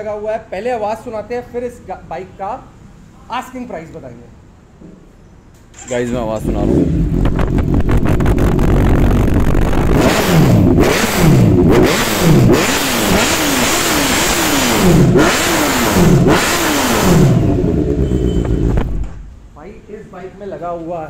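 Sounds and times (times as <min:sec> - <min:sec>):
motorcycle engine idling and revving: 0:06.0 - 0:19.4.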